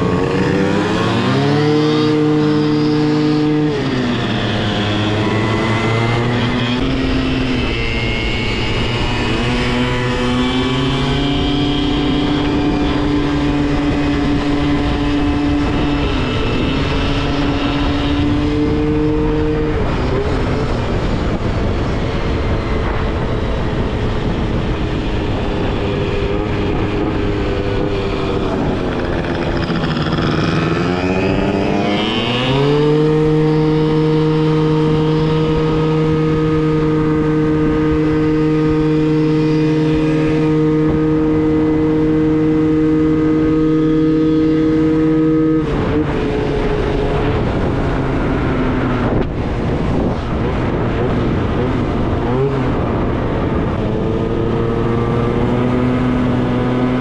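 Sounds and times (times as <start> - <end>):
scooter engine running: 0.0 - 57.0
wind and road rush: 0.0 - 57.0.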